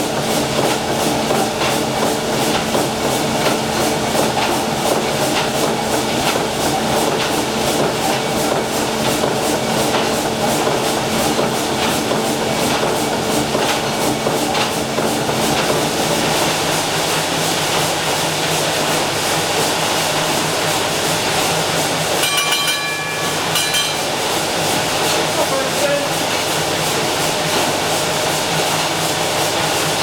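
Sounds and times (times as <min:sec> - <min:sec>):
steam engine rhythmic clatter: 0:00.0 - 0:30.0
high ringing tone: 0:22.2 - 0:24.2.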